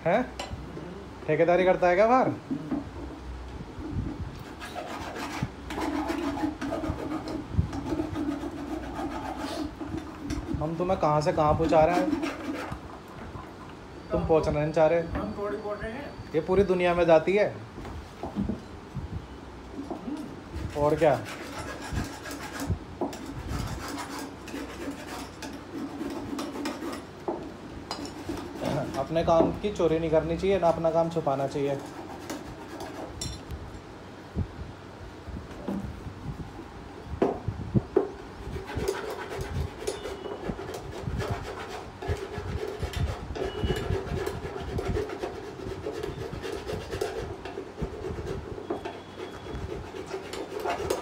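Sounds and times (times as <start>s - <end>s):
tool scraping plastic cup: 20.6s - 27.1s, 38.5s - 51.0s.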